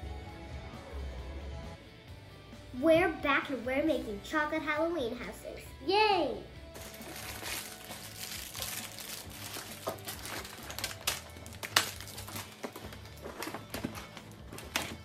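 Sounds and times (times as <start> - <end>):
plastic packaging crinkling: 6.8 - 15.0.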